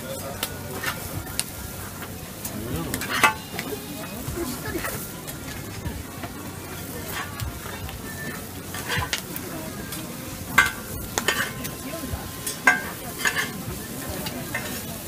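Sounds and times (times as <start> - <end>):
food sizzling: 0.0 - 15.0
metal spatulas scraping griddle: 0.8 - 5.8, 7.1 - 9.3, 10.4 - 11.8, 12.4 - 15.0.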